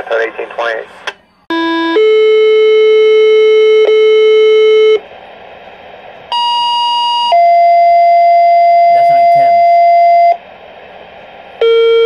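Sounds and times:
scanner static hiss: 0:02.6 - 0:12.0.

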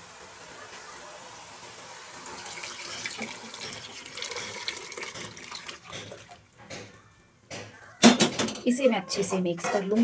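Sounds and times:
batter pouring and splashing: 0:02.2 - 0:06.5.

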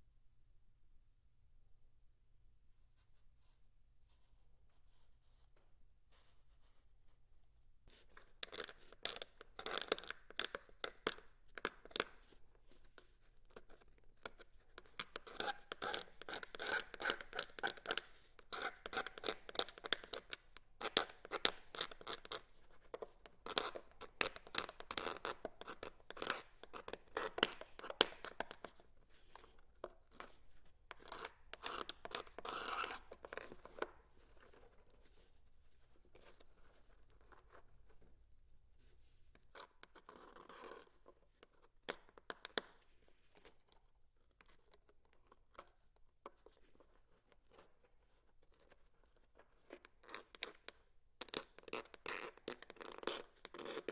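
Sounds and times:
razor blade scraping varnish: 0:31.0 - 0:33.5.

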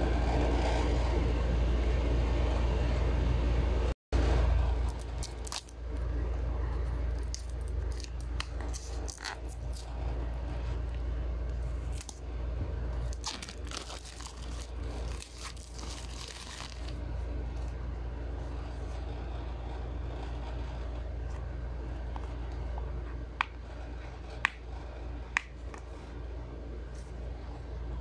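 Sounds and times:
steady low rumble: 0:00.0 - 0:28.0
plastic shrink wrap crinkling: 0:04.8 - 0:05.8, 0:06.9 - 0:09.9, 0:13.0 - 0:17.0.

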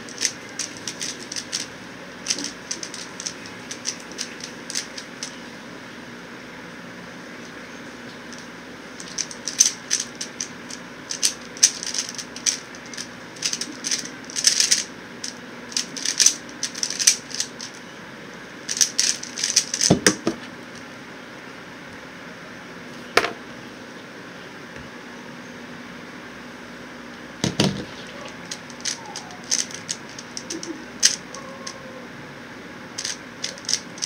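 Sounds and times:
puzzle cube plastic clicking: 0:00.0 - 0:05.4, 0:08.3 - 0:17.8, 0:18.7 - 0:20.2, 0:27.5 - 0:31.8, 0:33.0 - 0:34.0
electric fan hum: 0:00.0 - 0:34.0.

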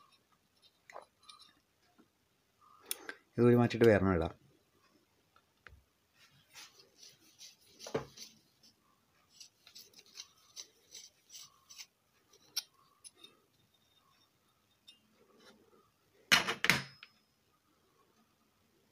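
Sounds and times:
metal tool scraping metal: 0:09.3 - 0:15.6.

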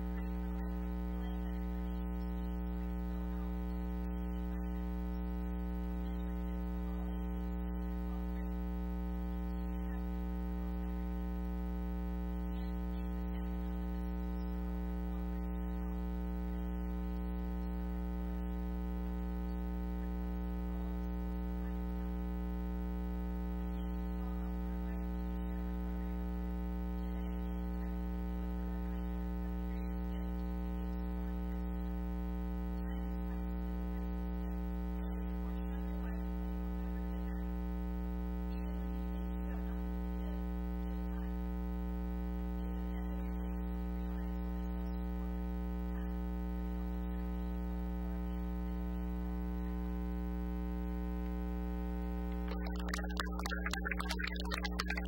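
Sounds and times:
electrical mains hum: 0:00.0 - 0:55.0.

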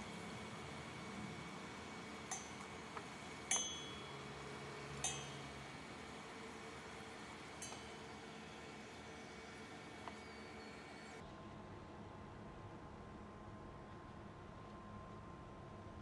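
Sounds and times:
chopsticks clinking on metal pot: 0:02.3 - 0:04.3, 0:05.0 - 0:05.7, 0:06.8 - 0:08.8.

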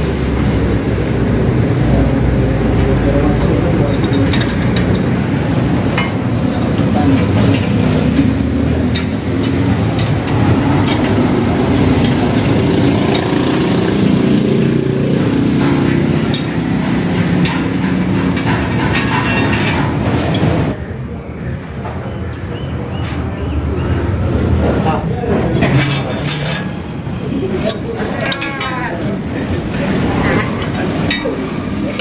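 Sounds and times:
hand-cranked machine clattering: 0:02.7 - 0:20.8.

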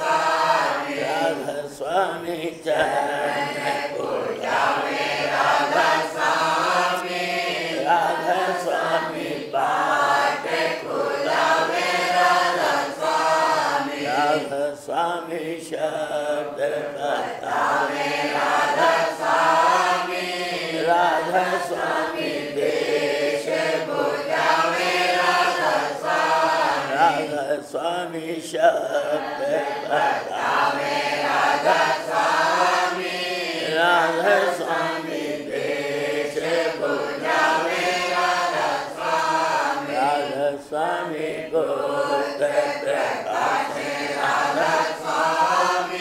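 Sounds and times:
voices chanting a hymn: 0:00.0 - 0:46.0.

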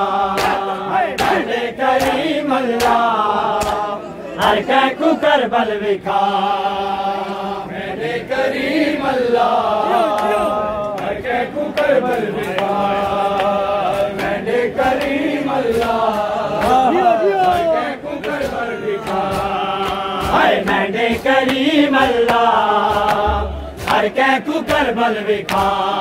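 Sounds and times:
men chanting in unison: 0:00.0 - 0:26.0
hand slaps on bare chests: 0:00.3 - 0:04.6, 0:11.7 - 0:26.0.

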